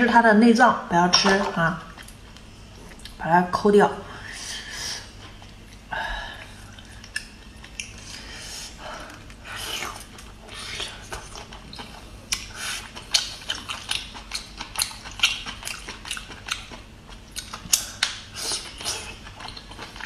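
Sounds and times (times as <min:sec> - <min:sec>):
person chewing with clicks: 0:01.9 - 0:03.2, 0:05.2 - 0:05.9, 0:06.6 - 0:08.2, 0:09.1 - 0:20.0.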